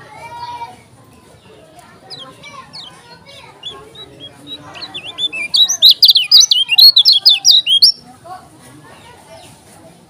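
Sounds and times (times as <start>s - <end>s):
bird twittering song: 2.0s - 8.0s.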